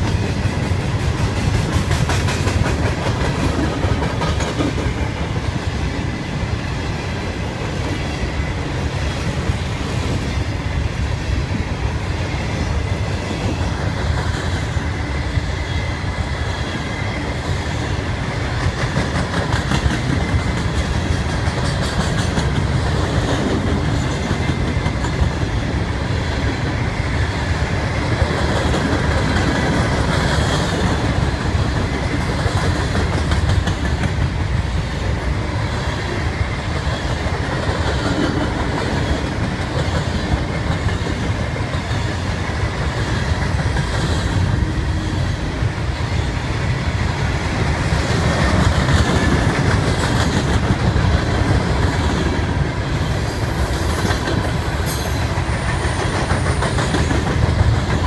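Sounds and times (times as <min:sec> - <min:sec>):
clickety-clack over rail joints: 0:00.0 - 0:58.0
steel wheels rumbling on rail: 0:00.0 - 0:58.0.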